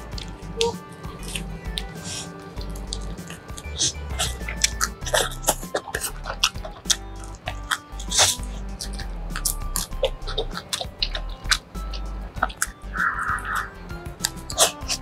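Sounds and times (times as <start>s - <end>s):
crunching bread crust: 0.0s - 15.0s.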